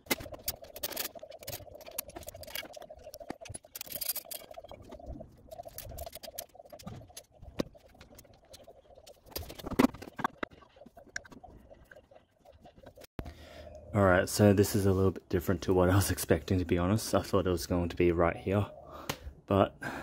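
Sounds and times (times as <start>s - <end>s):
metal tools clicking and scraping: 0.0s - 4.8s.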